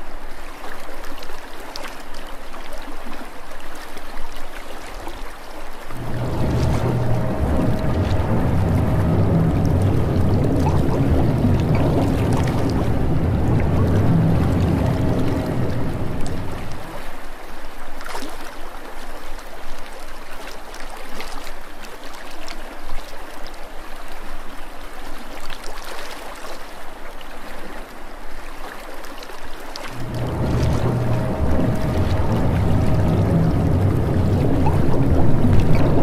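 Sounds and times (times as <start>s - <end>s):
water sloshing and trickling: 0.0s - 36.0s
low rumble: 5.9s - 17.2s, 29.8s - 36.0s.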